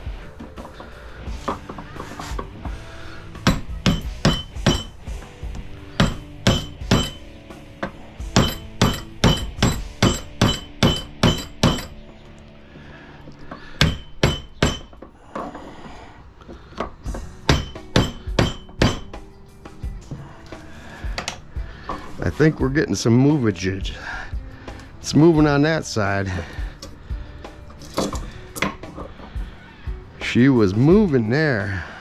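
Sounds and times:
hammer striking metal screwdriver: 6.0s - 7.2s, 7.8s - 12.0s.

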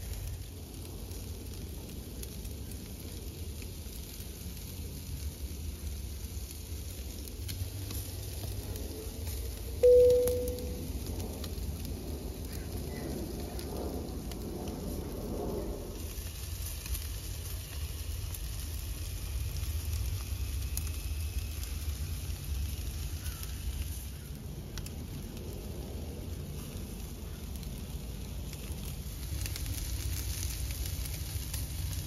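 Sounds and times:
fire crackling: 0.0s - 32.0s
meat sizzling over fire: 0.0s - 32.0s
low rumble: 7.4s - 16.8s.

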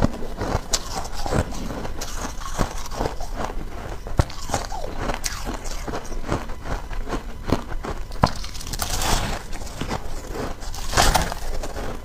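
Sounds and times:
shaved ice being chewed: 0.0s - 12.0s.

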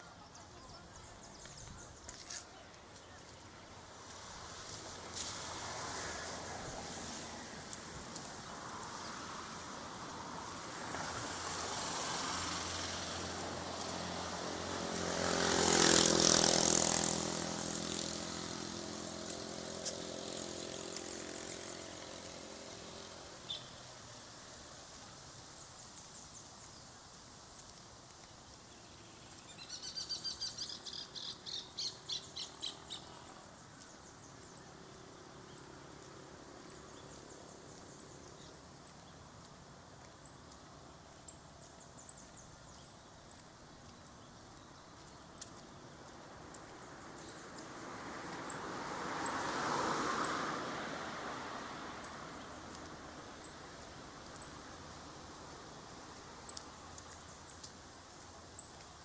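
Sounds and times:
vehicle driving past: 4.3s - 23.5s, 46.7s - 56.4s
bird chirping: 23.5s - 23.8s, 28.7s - 35.7s.

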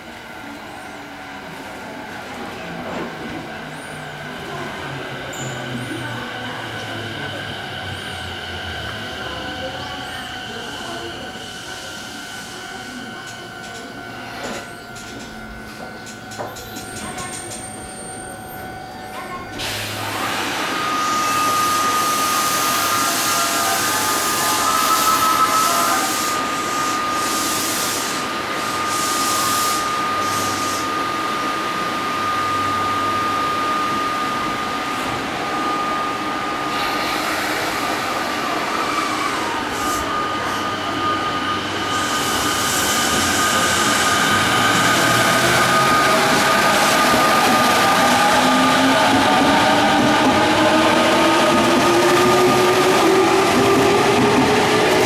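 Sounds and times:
electric train motors whining: 19.6s - 55.0s.

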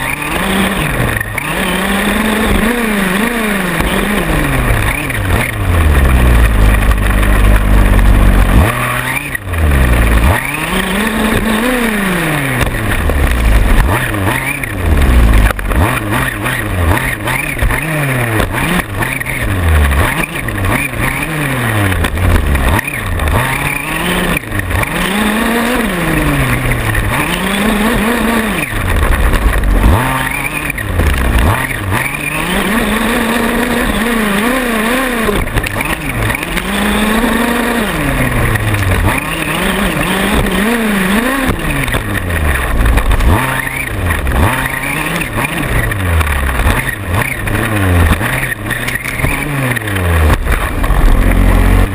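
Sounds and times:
small two-stroke engine revving: 0.0s - 51.9s.

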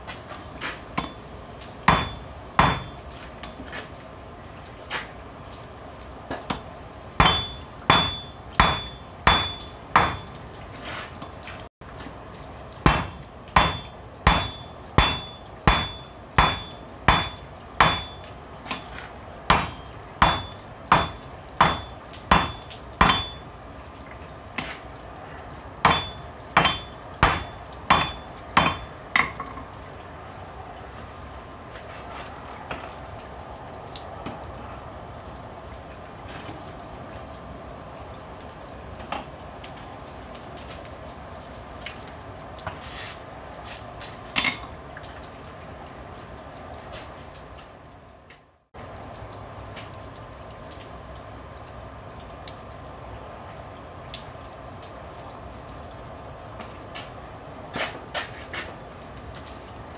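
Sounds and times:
hammer striking metal on anvil: 1.9s - 3.1s, 7.2s - 10.4s, 12.9s - 23.4s, 25.9s - 28.9s.

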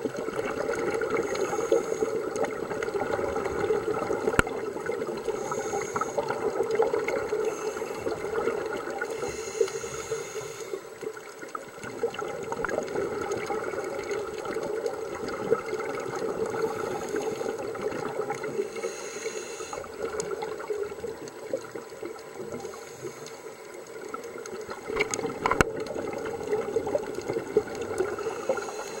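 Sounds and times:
muffled underwater rush: 0.0s - 29.0s
sharp underwater clicks: 4.2s - 4.6s, 23.2s - 28.2s.

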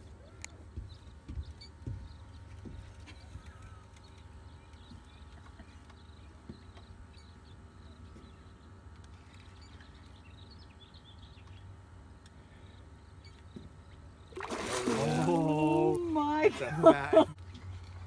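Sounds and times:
person speaking: 14.8s - 17.4s.

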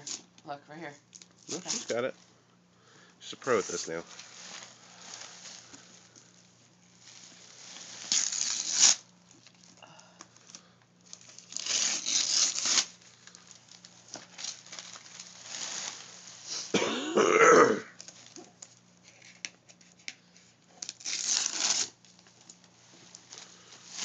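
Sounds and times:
wrapping paper tearing and crumpling: 1.4s - 2.0s, 3.5s - 9.8s, 10.4s - 16.7s, 17.9s - 24.0s.

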